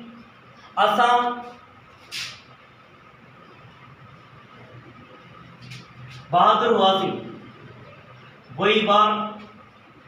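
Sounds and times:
low room noise: 0.0 - 10.0
marker writing on whiteboard: 1.3 - 2.5.

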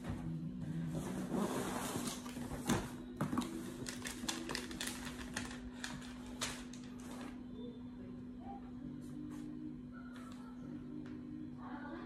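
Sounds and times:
paper crackling off cardboard: 3.4 - 7.4.

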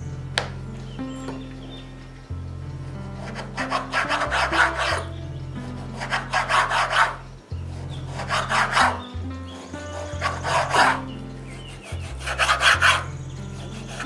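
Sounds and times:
background music: 0.0 - 14.0
knife sawing on cutting board: 5.9 - 7.2, 8.1 - 9.0, 10.0 - 11.0, 11.6 - 14.0.

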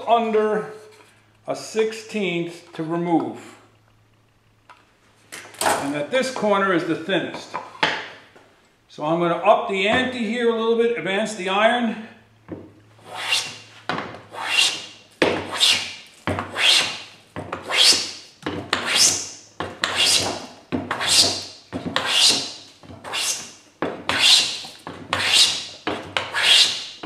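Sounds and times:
hand plane shaving wood: 13.0 - 13.6, 14.3 - 19.2, 19.8 - 26.9.

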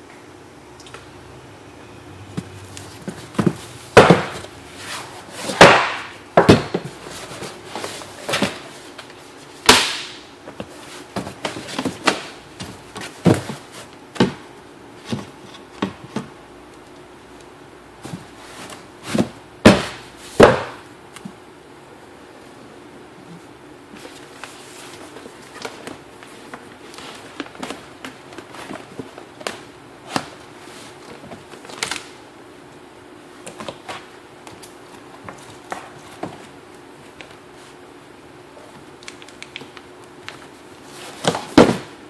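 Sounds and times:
cardboard boxes knocking and scraping: 2.3 - 8.8, 10.5 - 16.4, 18.0 - 20.8, 41.1 - 42.0.

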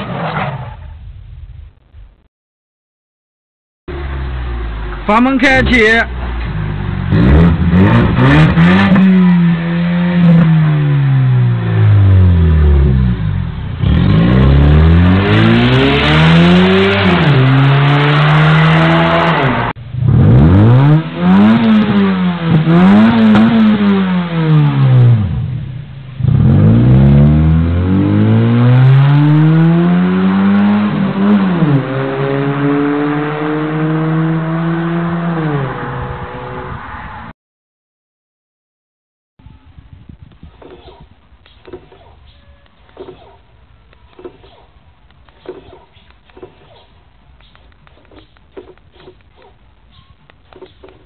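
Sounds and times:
car engines revving: 3.9 - 37.3.

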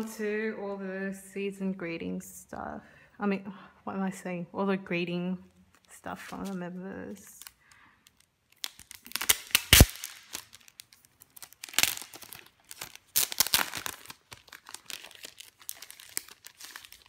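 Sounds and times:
cellophane sleeve crinkling: 5.7 - 17.0.

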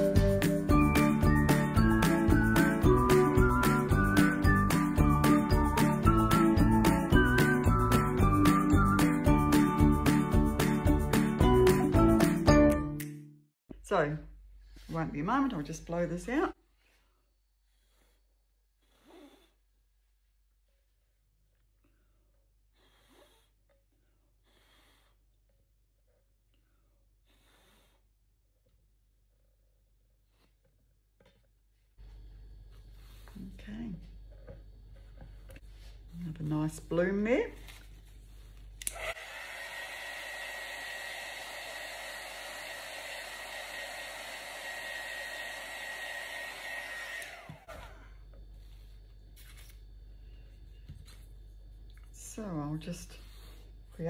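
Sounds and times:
faint puffs of breath: 24.2 - 25.2, 26.8 - 28.1
hot-air blower running: 38.8 - 48.1.

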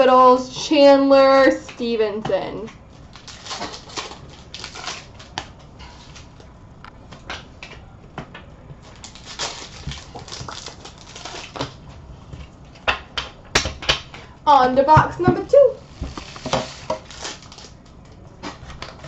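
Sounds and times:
papery rustling: 3.0 - 6.4, 8.8 - 11.8, 15.8 - 19.0.

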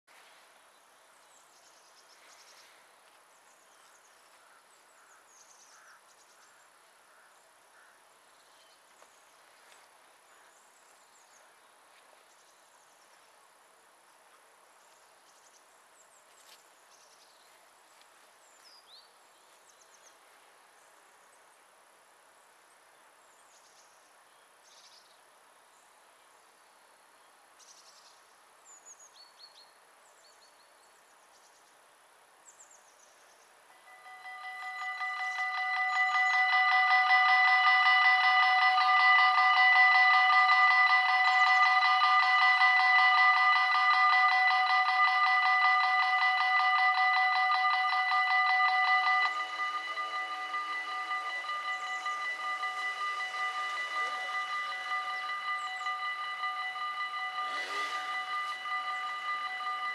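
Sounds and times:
steady hiss: 31.0 - 59.9.

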